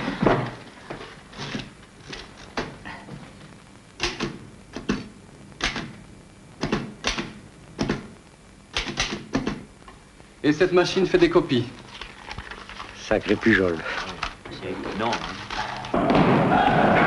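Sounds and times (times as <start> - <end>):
manual typewriter clacks: 8.7 - 9.6.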